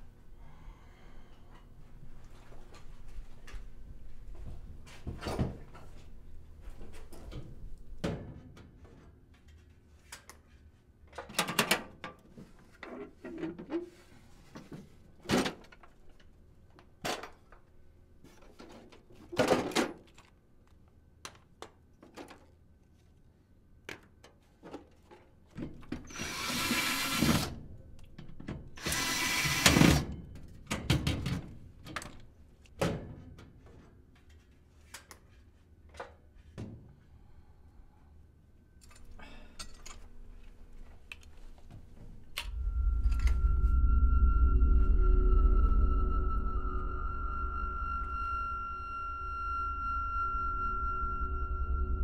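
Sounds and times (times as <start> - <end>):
power drill running: 26.1 - 27.5, 28.8 - 30.0.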